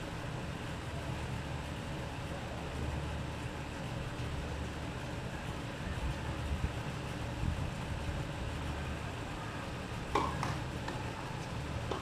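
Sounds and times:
low outdoor rumble: 0.0 - 12.0
tennis ball knocks: 10.1 - 11.1.

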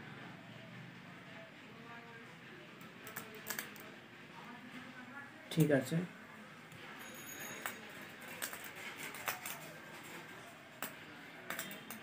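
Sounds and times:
tools and wires tapping: 7.5 - 12.0.

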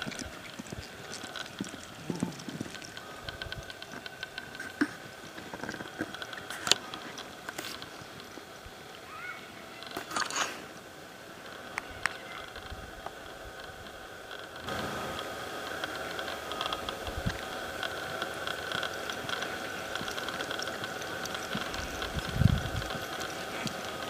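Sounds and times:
muffled hoofbeats on dirt: 0.0 - 7.0, 17.3 - 24.0
horse hooves clicking: 0.0 - 9.0, 11.4 - 24.0
outdoor background noise: 0.0 - 24.0.

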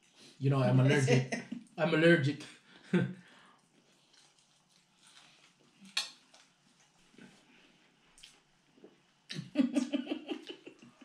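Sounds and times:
woman laughing: 9.3 - 11.0.

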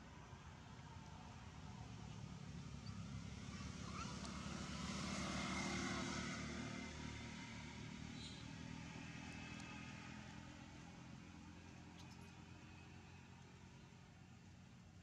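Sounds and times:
distant engine hum passing by: 0.6 - 15.0.

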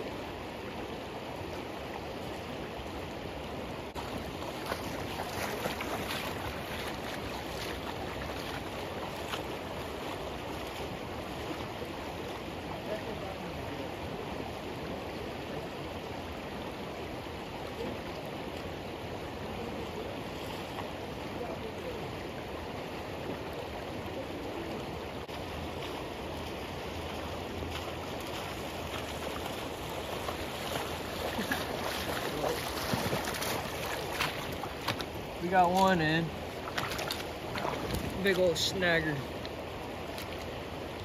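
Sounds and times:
river rushing over gravel: 0.0 - 41.0
person wading through water: 4.0 - 12.4, 24.5 - 41.0.

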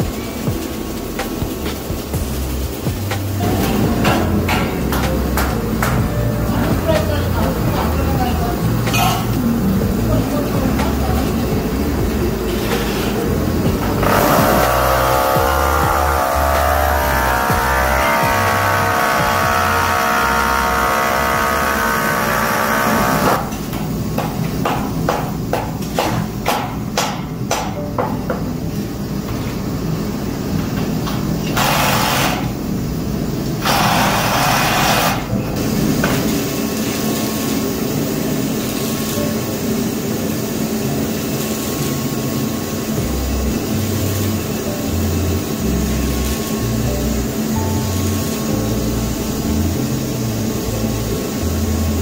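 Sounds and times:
background music: 0.0 - 23.5, 35.0 - 52.0
arc welding hiss and crackle: 0.0 - 52.0.

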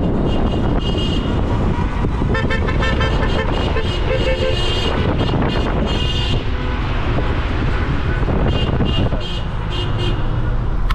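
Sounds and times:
car horns honking: 0.0 - 1.6, 2.2 - 7.2, 7.8 - 10.4
wind buffeting microphone: 0.0 - 9.7
road and traffic rumble: 0.0 - 10.9.

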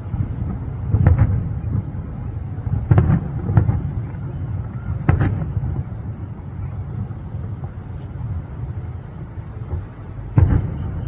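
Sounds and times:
distant firework shells bursting: 0.0 - 2.1, 2.7 - 7.8, 9.6 - 11.0.

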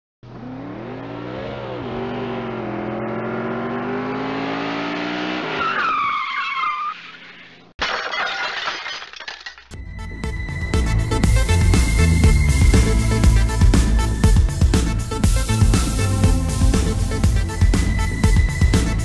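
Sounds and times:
car engine revving: 0.2 - 5.6
tyres screeching: 5.5 - 7.7.

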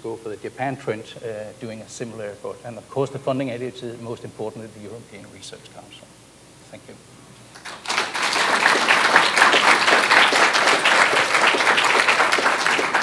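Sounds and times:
audience applauding: 7.5 - 13.0.

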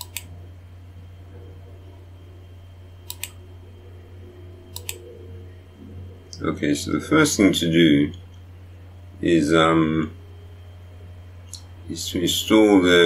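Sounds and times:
low electrical hum: 0.0 - 13.0
computer mouse double clicking: 4.7 - 5.0.

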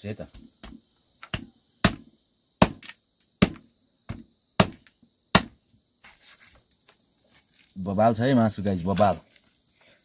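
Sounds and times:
knife chopping on wooden block: 0.6 - 5.6
faint handling sounds: 6.0 - 7.9.

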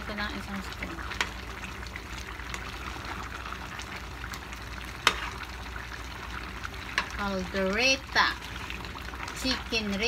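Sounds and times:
stew simmering and sizzling: 0.0 - 10.0
spoon scraping pan: 4.8 - 7.5.

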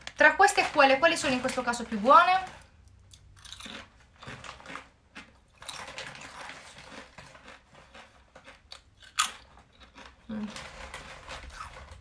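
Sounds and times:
potato chips crunching: 0.0 - 12.0.

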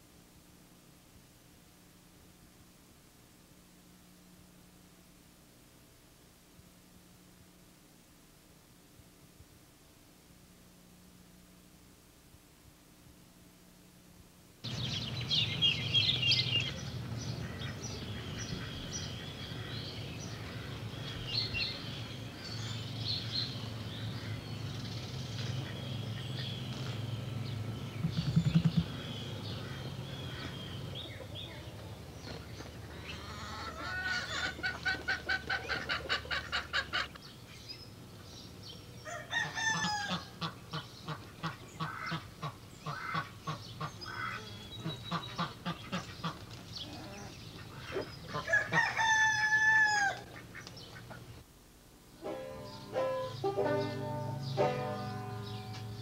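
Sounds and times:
low steady hum: 0.0 - 56.0
birds chirping: 14.7 - 51.5, 52.2 - 56.0.

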